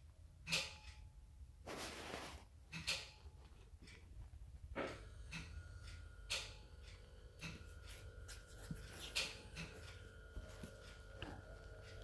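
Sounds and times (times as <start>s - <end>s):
faint steady hum: 0.0s - 12.0s
puppy rustling on blanket: 1.7s - 2.4s.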